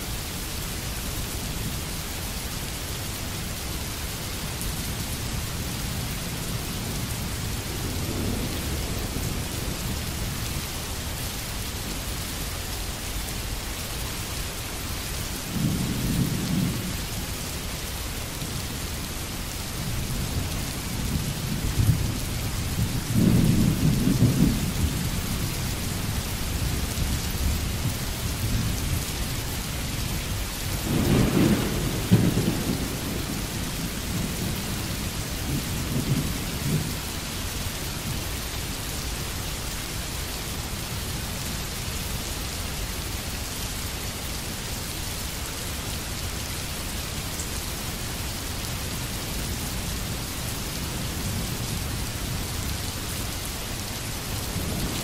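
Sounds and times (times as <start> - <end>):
steady rain hiss: 0.0 - 55.0
low rolls of thunder: 7.4 - 10.3, 21.0 - 25.4, 30.8 - 37.0.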